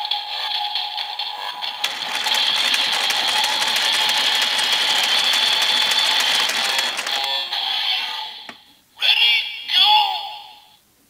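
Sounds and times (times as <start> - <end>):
toy handle ratcheting clicks: 1.8 - 7.5
electronic toy music: 1.8 - 8.2.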